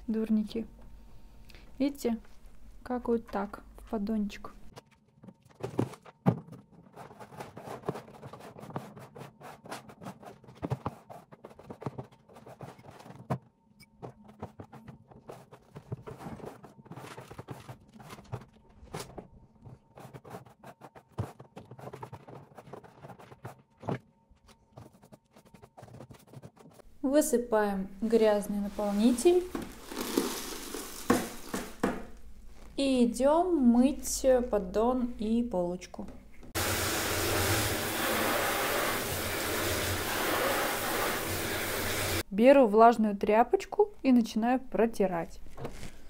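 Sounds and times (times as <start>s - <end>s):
brush sweeping plastic tray: 28.6s - 31.7s, 36.6s - 42.2s.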